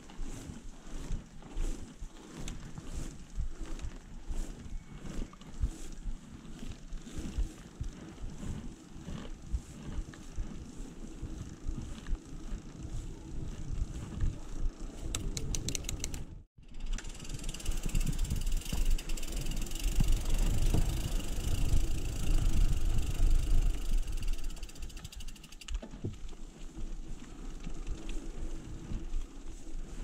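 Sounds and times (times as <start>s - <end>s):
wind on microphone: 0.0s - 16.5s, 17.2s - 24.7s
bike freewheel ticking: 6.8s - 25.8s.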